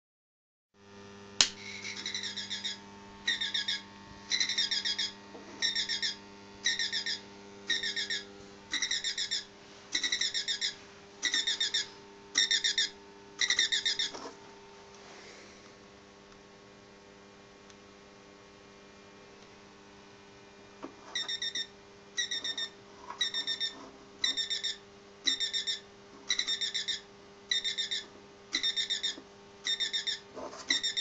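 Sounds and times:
low steady hum: 0:00.8 - 0:31.0
alarm clock beeping: 0:02.1 - 0:09.4, 0:10.0 - 0:14.0, 0:21.2 - 0:28.0.

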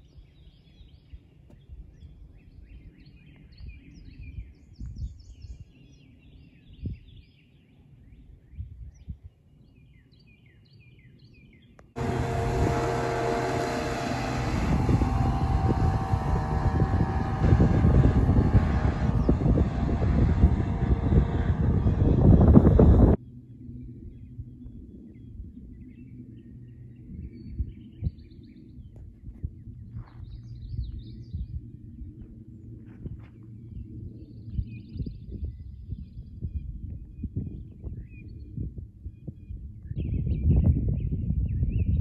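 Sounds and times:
wind: 0:00.0 - 0:42.0
motorboat engine running: 0:12.0 - 0:23.2.

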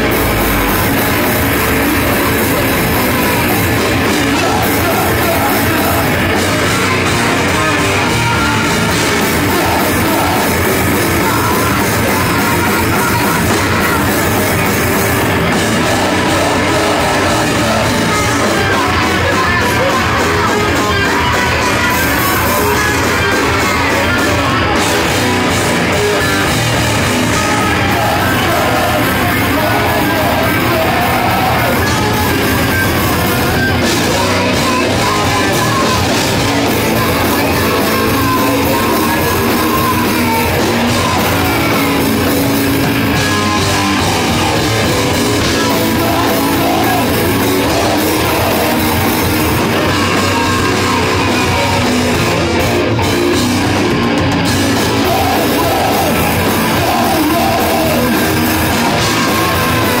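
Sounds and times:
heavy metal band playing live: 0:00.0 - 1:00.0.

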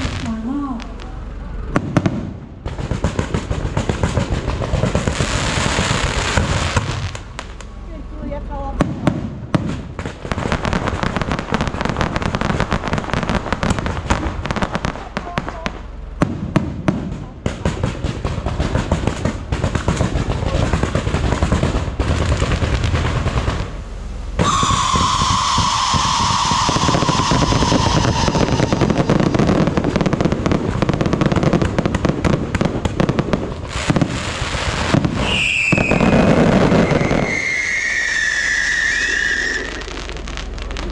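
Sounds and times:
fireworks crackling and popping: 0:00.0 - 0:40.9
firework whistle: 0:24.3 - 0:31.7, 0:33.7 - 0:40.9.

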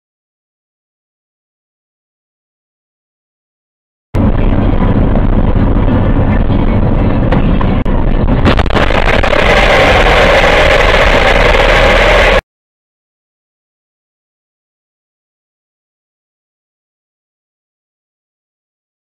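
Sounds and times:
car engine and road noise: 0:04.2 - 0:12.4.

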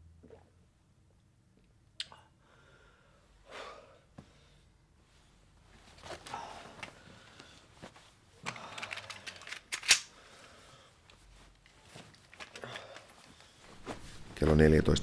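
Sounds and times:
cloth rustling: 0:05.0 - 0:08.5, 0:10.2 - 0:14.6.

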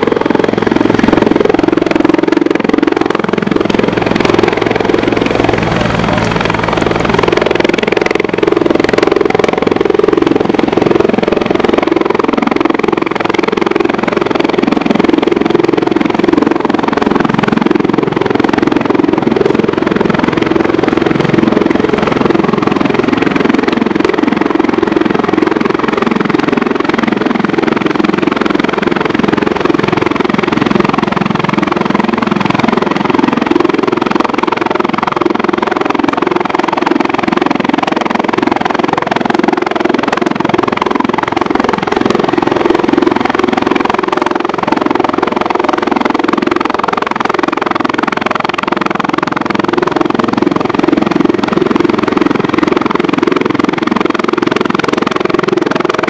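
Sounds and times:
helicopter hovering: 0:00.0 - 0:56.0.

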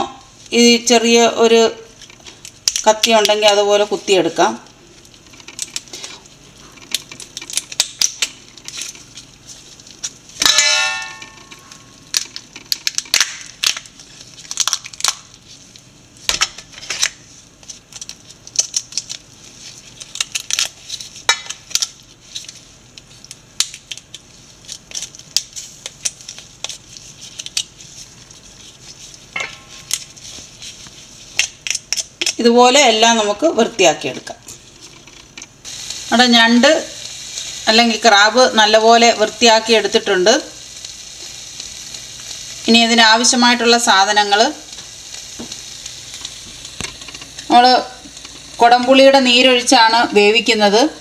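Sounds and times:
crab shell cracking and prying: 0:06.8 - 0:08.9, 0:12.1 - 0:15.4, 0:17.8 - 0:22.0, 0:23.2 - 0:27.8, 0:31.4 - 0:32.4.

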